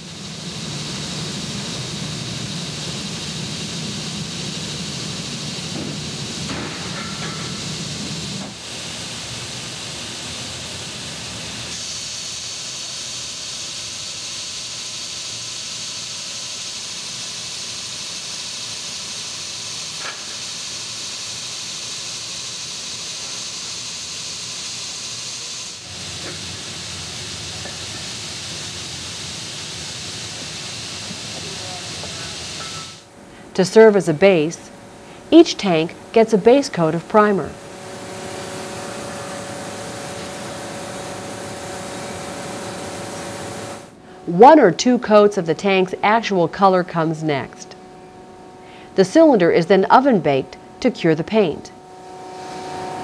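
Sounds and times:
sanding machine hissing: 0:07.3 - 0:33.0, 0:37.2 - 0:44.0.

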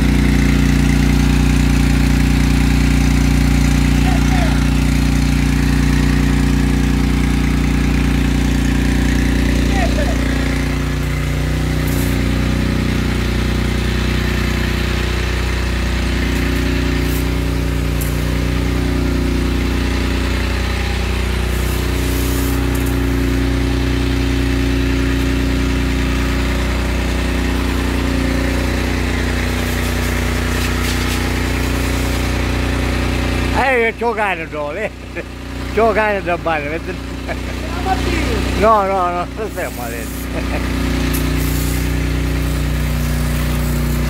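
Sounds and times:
hose nozzle spraying water: 0:00.0 - 0:33.6, 0:35.2 - 0:44.0
small engine pump running: 0:00.0 - 0:44.0.

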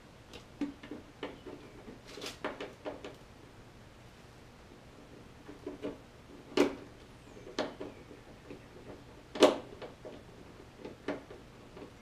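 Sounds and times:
plastic clicks and knocks: 0:00.3 - 0:03.2, 0:05.4 - 0:12.0.

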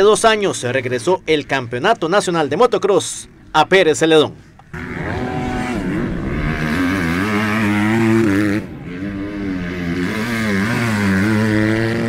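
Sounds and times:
motocross bike engines revving: 0:04.6 - 0:12.0.

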